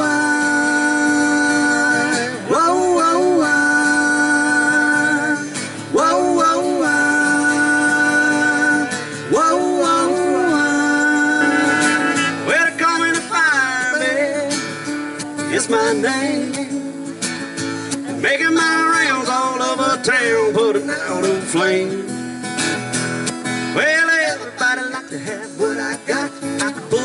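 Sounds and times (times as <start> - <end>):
strummed acoustic guitar: 0.0 - 27.0
muted trumpet solo: 11.4 - 12.5.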